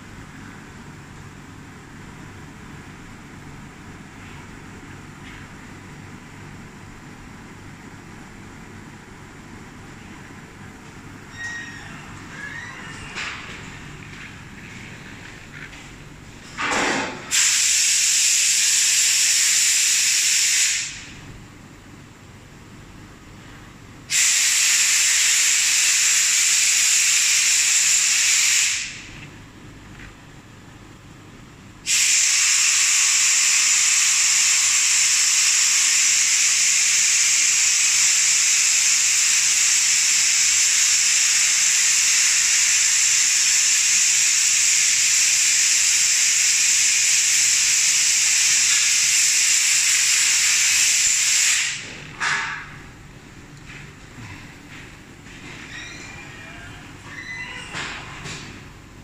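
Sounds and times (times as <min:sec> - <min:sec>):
loud steady hiss: 0:16.6 - 0:21.3, 0:24.1 - 0:29.2, 0:31.8 - 0:52.3.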